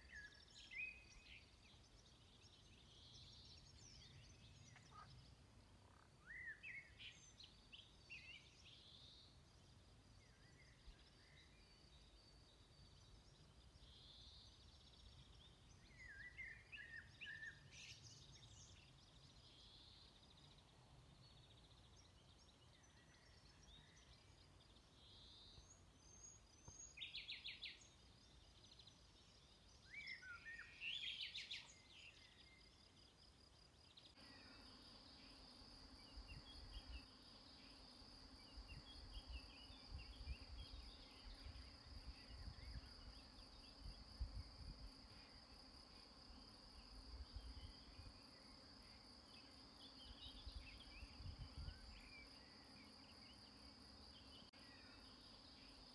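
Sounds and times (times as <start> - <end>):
bird chirps: 0.0 - 9.4, 10.2 - 33.0.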